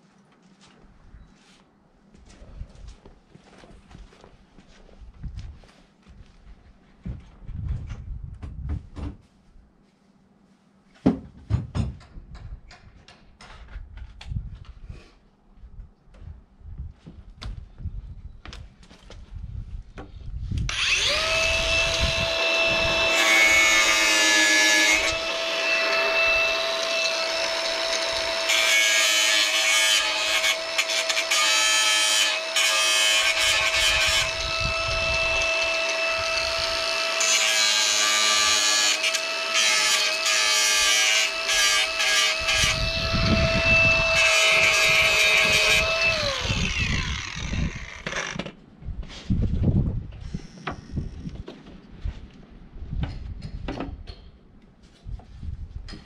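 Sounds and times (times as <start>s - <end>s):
power tool motor running: 20.7s - 29.0s, 30.0s - 37.4s, 41.2s - 48.4s.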